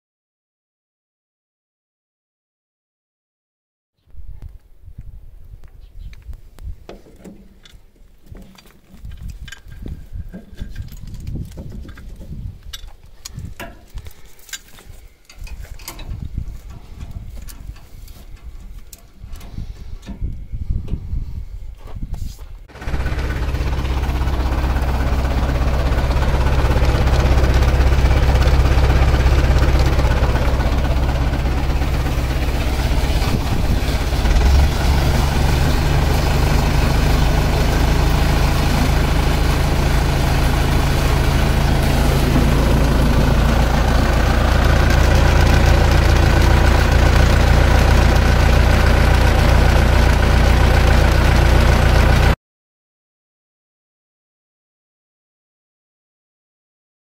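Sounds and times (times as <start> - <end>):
tractor engine running: 22.7 - 52.4
water pump pumping: 22.7 - 52.4.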